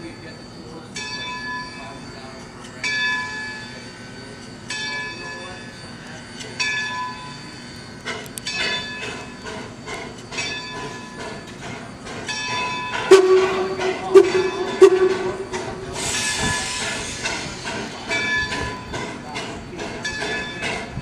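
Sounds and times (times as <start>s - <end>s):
locomotive bell ringing: 0.0s - 21.0s
steam whistle blasts: 13.1s - 17.3s.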